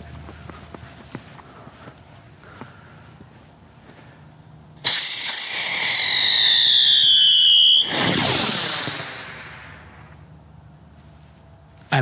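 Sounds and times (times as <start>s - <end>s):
whistling firework: 4.8s - 10.2s.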